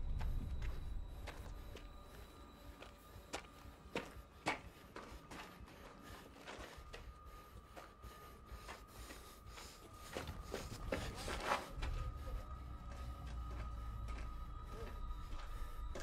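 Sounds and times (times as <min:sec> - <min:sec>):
low rumble: 0:00.0 - 0:02.7
soft footsteps: 0:00.0 - 0:16.0.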